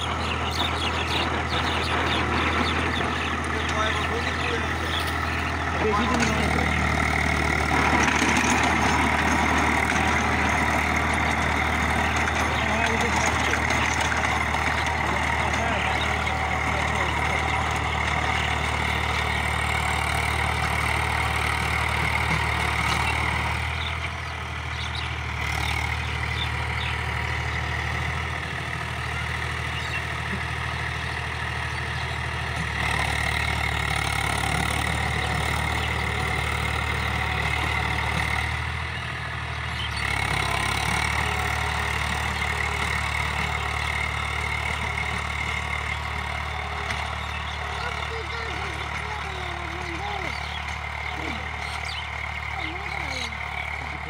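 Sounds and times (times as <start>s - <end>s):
tractor diesel engine running: 0.0s - 54.0s.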